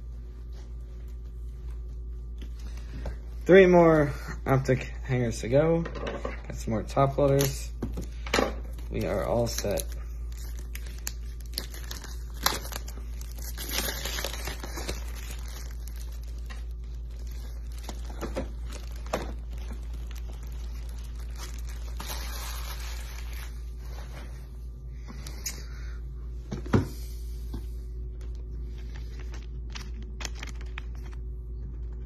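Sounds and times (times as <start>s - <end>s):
wrapper tearing and crinkling: 8.7s - 23.9s, 28.2s - 31.2s.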